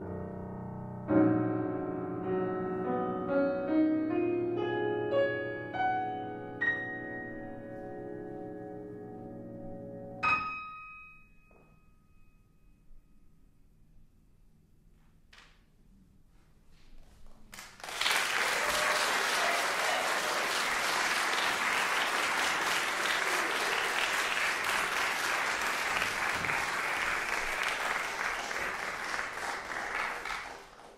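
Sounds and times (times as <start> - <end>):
audience applauding: 17.5 - 30.9.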